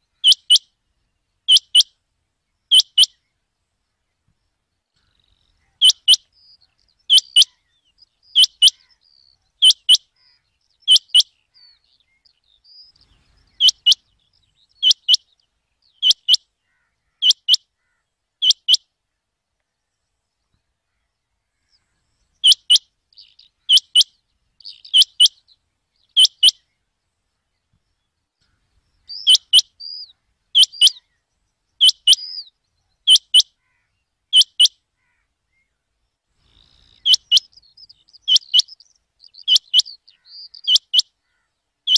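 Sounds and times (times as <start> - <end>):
quail calling: 0.0 - 0.7, 1.5 - 1.9, 2.7 - 3.2, 5.0 - 11.9, 13.0 - 14.1, 14.8 - 15.3, 16.0 - 18.8, 20.9 - 25.5, 26.1 - 26.7, 28.4 - 31.2, 31.8 - 35.7, 36.4 - 41.9.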